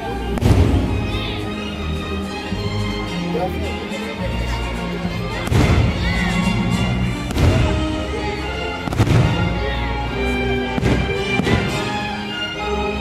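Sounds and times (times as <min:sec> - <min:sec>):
show music: 0:00.0 - 0:13.0
fireworks booming: 0:00.3 - 0:01.2, 0:05.4 - 0:08.2, 0:08.8 - 0:10.0, 0:10.6 - 0:12.2.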